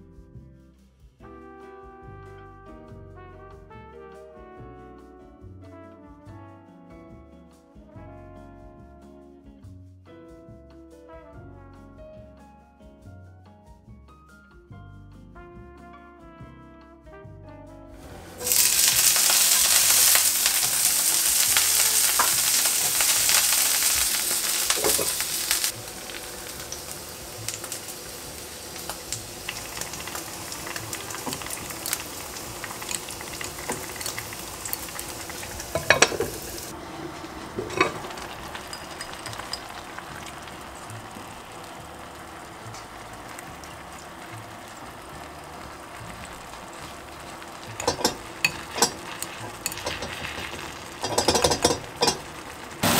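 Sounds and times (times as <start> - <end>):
food sizzling in frying pan: 18.0 - 52.9
utensils clinking: 18.4 - 40.6, 47.6 - 52.9.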